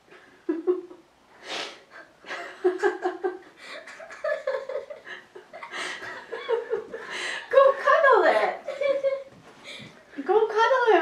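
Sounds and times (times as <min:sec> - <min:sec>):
girl giggling: 0:00.4 - 0:01.1, 0:02.0 - 0:07.4, 0:08.2 - 0:09.3.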